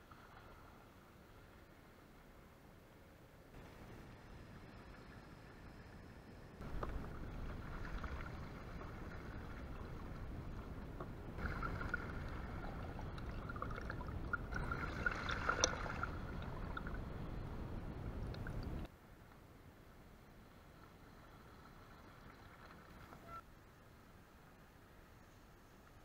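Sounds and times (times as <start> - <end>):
bike tyres splashing through stream: 11.4 - 16.4.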